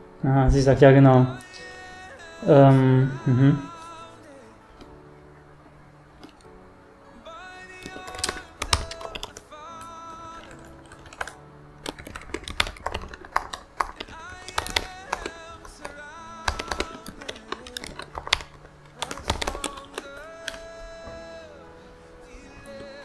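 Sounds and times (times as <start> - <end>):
soft background music: 0.0 - 23.0
laptop keyboard typing: 7.6 - 21.2, 22.3 - 23.0.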